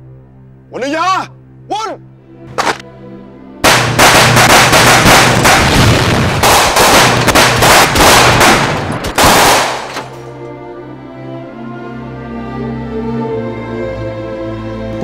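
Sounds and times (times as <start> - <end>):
explosion blasts: 3.6 - 9.9
heavy rifle fire: 3.6 - 10.1.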